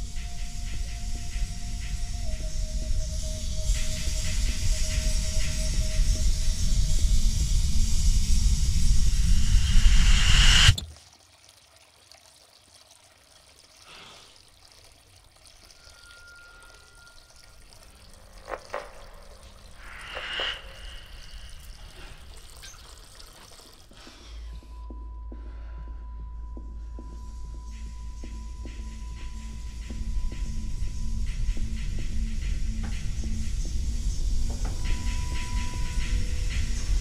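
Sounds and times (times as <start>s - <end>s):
water trickling and dripping: 0.0s - 10.0s, 10.7s - 25.0s
rushing noise: 0.0s - 10.8s, 16.2s - 22.5s
steady high tone: 0.0s - 10.8s, 15.8s - 22.3s
low hum: 0.0s - 10.9s, 15.6s - 22.8s.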